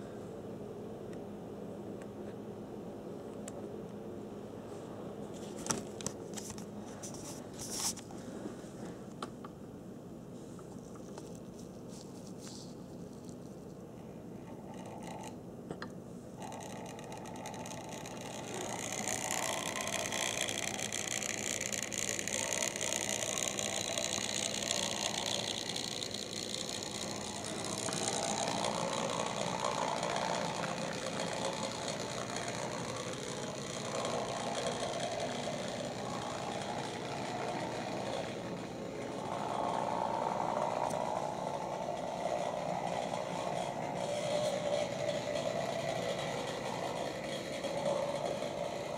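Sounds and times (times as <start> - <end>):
model train motor whirring: 14.4 - 15.4, 16.4 - 48.9.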